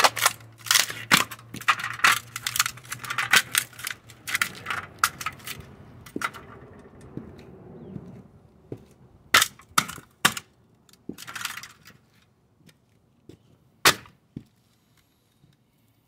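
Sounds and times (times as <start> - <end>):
crushed tin crinkling: 0.0 - 6.4
boot clacking on concrete: 0.3 - 12.0.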